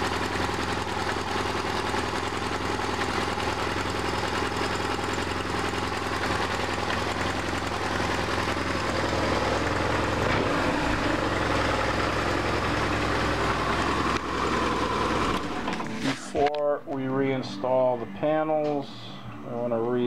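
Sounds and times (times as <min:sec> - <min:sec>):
motorcycle engine idling: 0:00.0 - 0:16.0.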